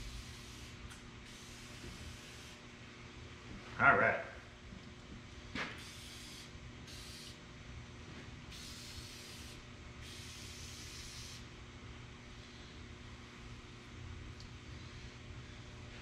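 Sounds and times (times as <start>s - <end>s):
aerosol spray hissing bursts: 0.0s - 2.6s, 5.8s - 7.4s, 8.5s - 11.5s.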